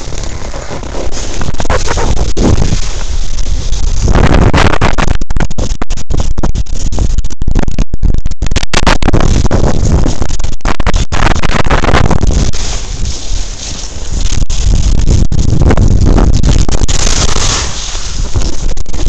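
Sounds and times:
skis hissing and scraping on snow: 0:00.0 - 0:04.1, 0:12.2 - 0:15.2, 0:16.9 - 0:19.0
wind rushing on microphone: 0:00.0 - 0:19.0.

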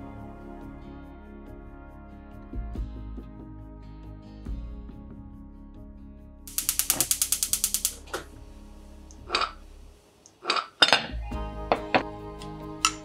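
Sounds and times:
gas igniter clicking: 0:06.5 - 0:08.4, 0:09.1 - 0:09.6
kitchenware clinking: 0:09.2 - 0:09.6, 0:10.4 - 0:12.0.

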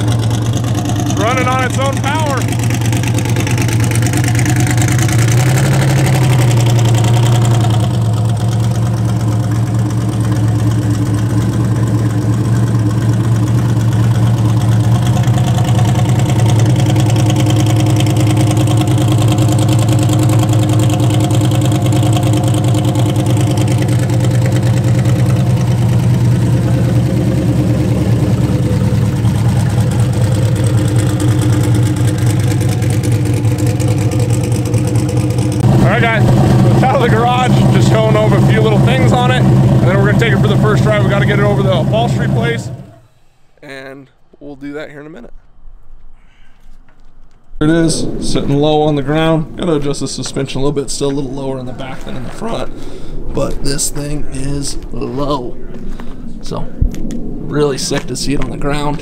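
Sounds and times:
car engine idling: 0:00.0 - 0:44.3.

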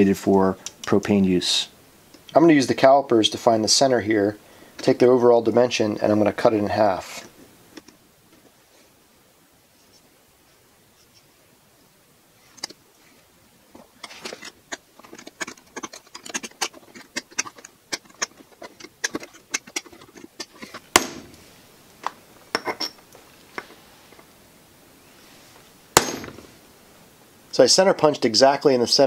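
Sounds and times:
centre punch striking metal: 0:20.9 - 0:21.4, 0:26.0 - 0:26.5.

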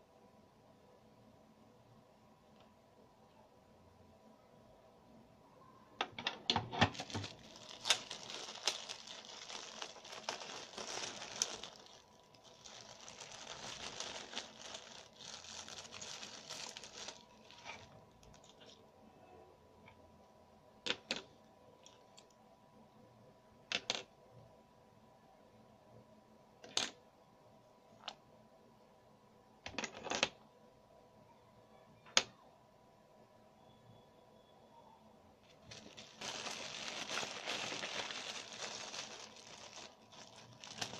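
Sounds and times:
plastic parts tapping: 0:06.0 - 0:18.7
plastic bag crinkling: 0:06.8 - 0:18.8, 0:35.4 - 0:40.9.

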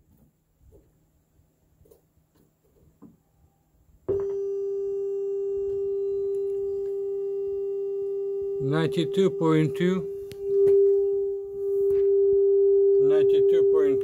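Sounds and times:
radio test tone: 0:08.6 - 0:14.0.

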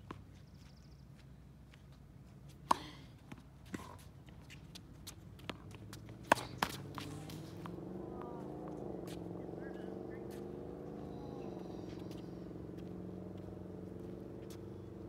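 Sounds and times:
shoe steps on court: 0:02.7 - 0:07.8
ball bouncing on hard court: 0:05.4 - 0:09.2
tennis ball struck with rackets: 0:05.4 - 0:09.3.

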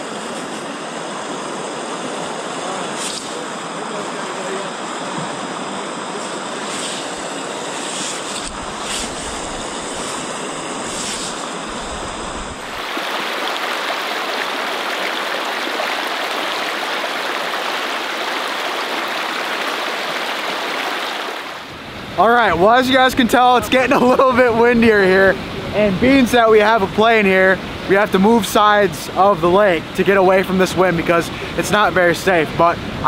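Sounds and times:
water lapping at shore: 0:01.4 - 0:21.6
wind on microphone: 0:06.2 - 0:12.9
creek rushing over rocks: 0:06.3 - 0:21.7.

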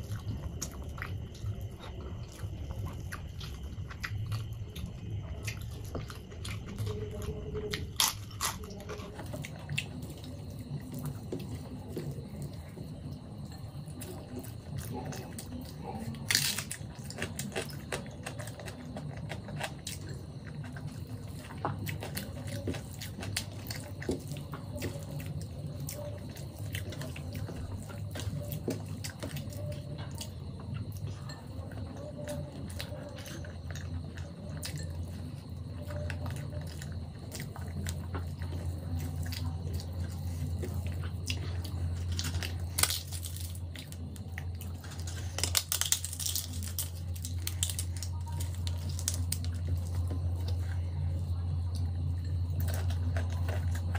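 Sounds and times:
steady low hum: 0:00.0 - 0:53.9
crisp crackling of papad: 0:42.0 - 0:50.7.

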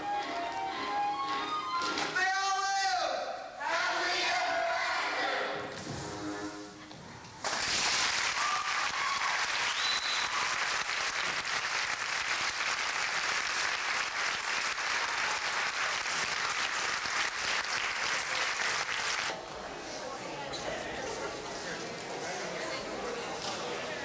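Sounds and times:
audience applauding: 0:07.4 - 0:19.3.

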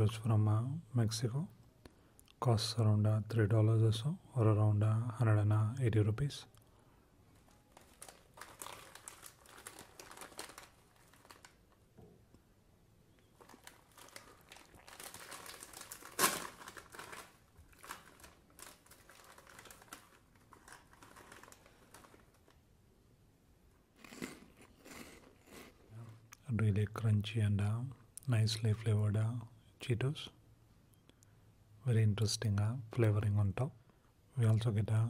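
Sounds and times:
snack bag crinkling: 0:07.3 - 0:11.8, 0:13.3 - 0:22.6
bag ripping open: 0:07.4 - 0:11.6, 0:13.4 - 0:22.6.

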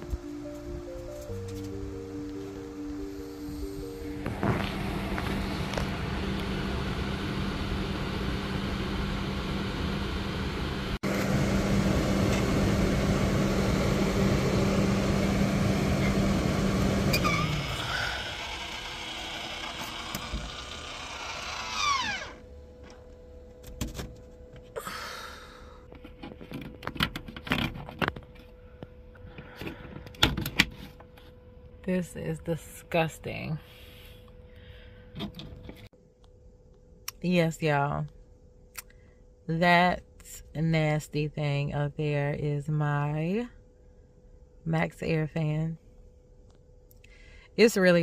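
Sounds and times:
roof vent fan running: 0:00.0 - 0:31.3.

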